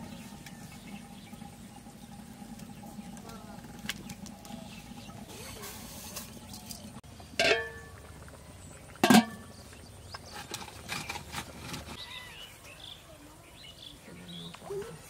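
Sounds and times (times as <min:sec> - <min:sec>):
sharp metallic clanks: 0:07.4 - 0:07.9.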